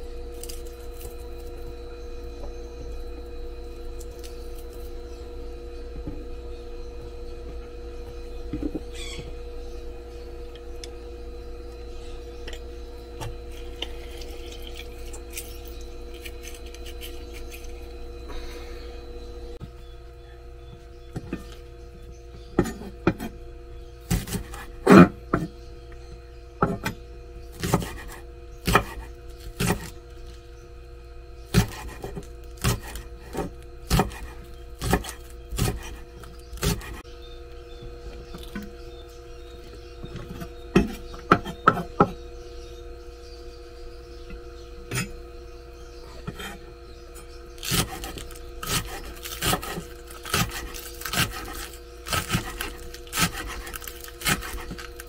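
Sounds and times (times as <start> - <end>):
steady background hum: 0.0 - 55.0
knife chopping on wooden board: 24.1 - 25.5, 27.6 - 29.9, 31.5 - 36.0, 36.6 - 37.0, 47.7 - 54.9.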